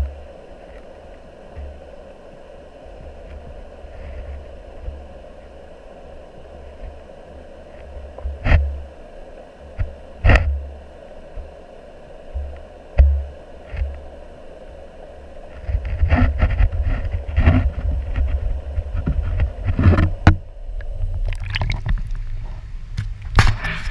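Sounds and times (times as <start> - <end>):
muffled underwater river rumble: 0.0 - 23.9.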